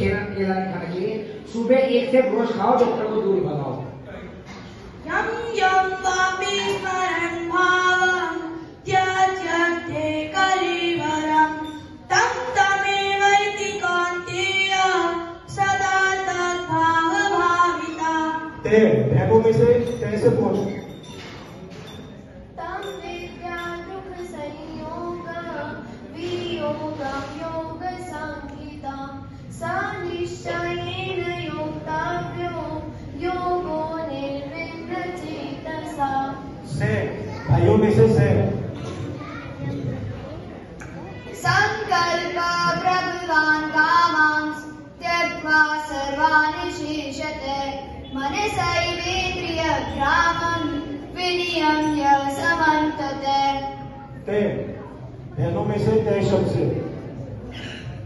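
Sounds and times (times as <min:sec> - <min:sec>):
boy singing into microphone: 0:05.1 - 0:20.8, 0:22.6 - 0:39.9, 0:41.1 - 0:54.1.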